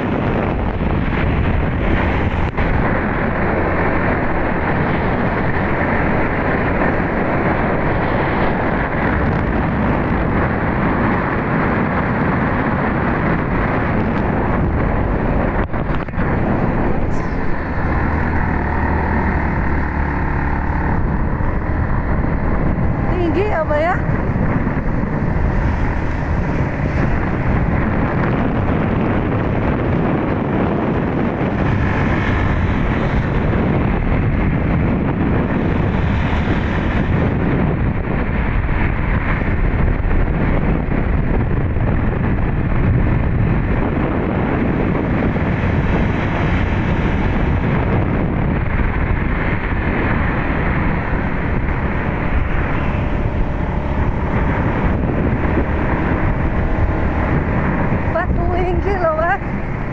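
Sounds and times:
motorcycle engine running: 0.0s - 59.9s
wind buffeting microphone: 0.0s - 59.9s.

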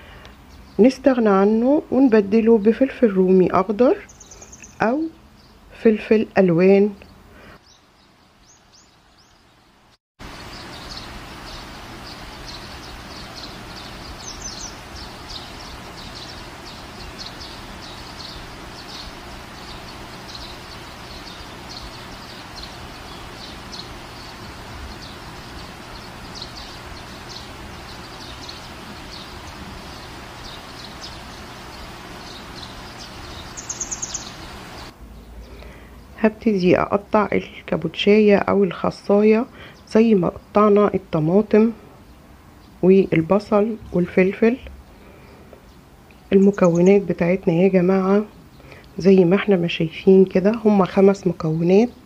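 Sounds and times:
birds chirping: 0.0s - 52.0s
steady background hiss: 0.0s - 52.0s
high bird call: 10.5s - 34.9s.

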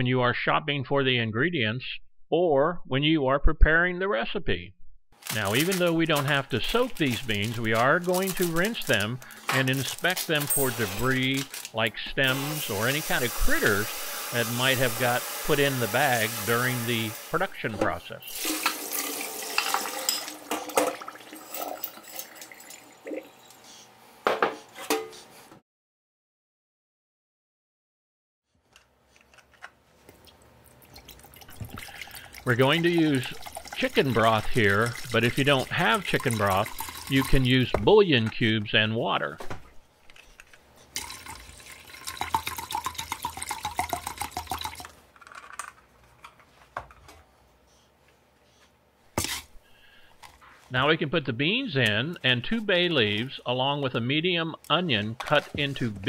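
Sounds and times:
beans rattling in strainer: 5.2s - 17.1s, 32.4s - 37.6s
broth pouring into metal pot: 18.3s - 23.1s, 30.9s - 37.5s, 41.0s - 44.9s
water splashing into sink: 18.3s - 23.3s, 30.7s - 37.5s
small drips: 30.1s - 37.4s.

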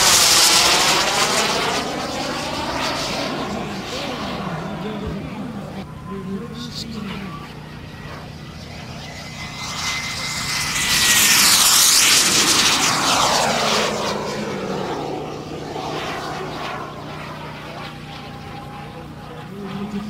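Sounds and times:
model jet passing by: 0.0s - 20.0s.

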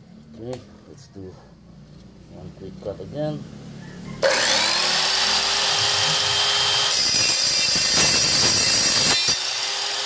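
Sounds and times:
circular saw whine: 4.2s - 10.0s
saw cutting steel: 4.2s - 10.0s.

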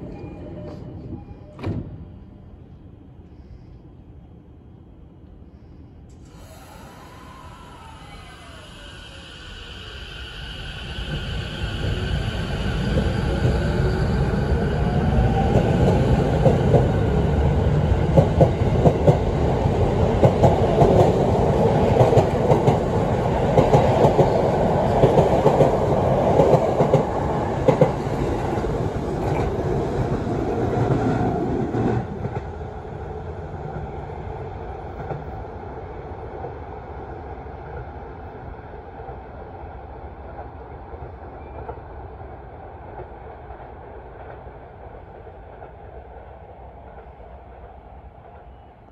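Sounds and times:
train rumble: 0.0s - 48.9s
electric train motor whine: 6.2s - 16.3s.

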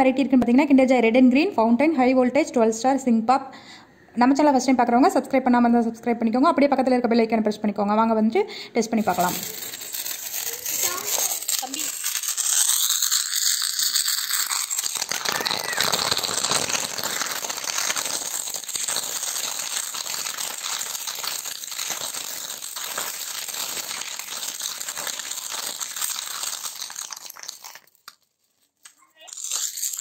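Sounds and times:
firework fountain hissing and crackling: 9.0s - 28.2s.

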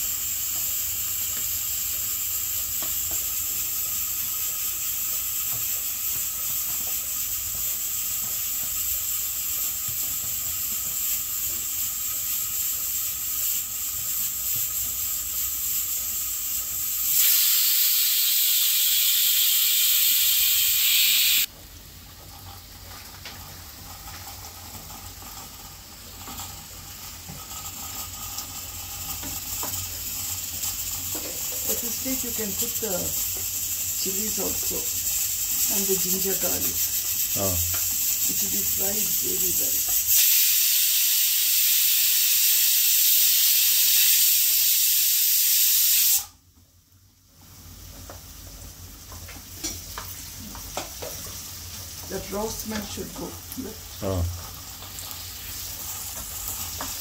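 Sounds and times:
onions sizzling in oil: 0.0s - 57.0s
loud hiss: 16.5s - 21.5s, 29.3s - 46.4s.

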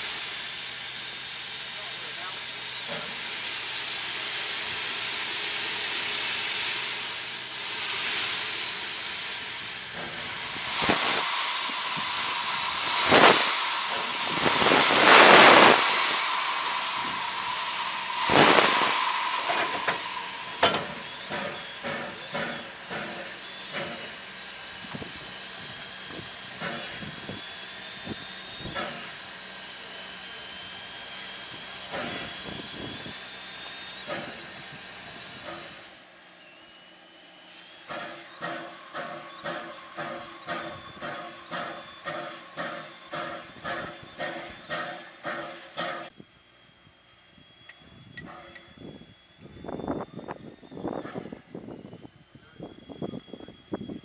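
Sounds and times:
locomotive steam hissing: 0.0s - 36.7s, 37.3s - 46.2s
thin whistling tone: 46.7s - 54.0s.

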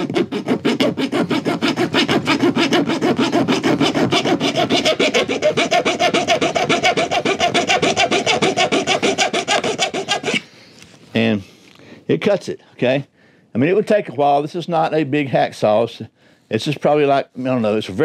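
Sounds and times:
metal saw cutting aluminum: 0.0s - 10.4s.

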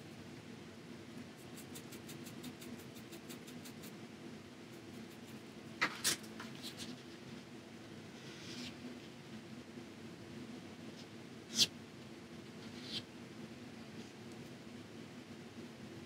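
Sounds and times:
low room hum: 0.0s - 16.0s
brush brushing on paper: 1.3s - 4.0s
brush ticking on palette: 1.4s - 4.0s.

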